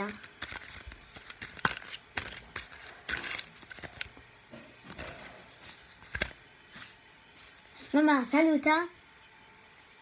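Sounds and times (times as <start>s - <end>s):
plastic packaging crinkling: 0.0s - 4.2s, 4.8s - 6.4s.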